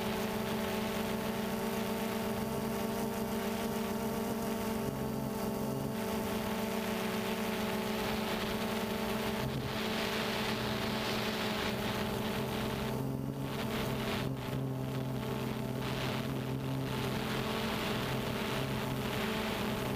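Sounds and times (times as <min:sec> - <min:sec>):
wind noise on microphone: 0:07.9 - 0:19.9.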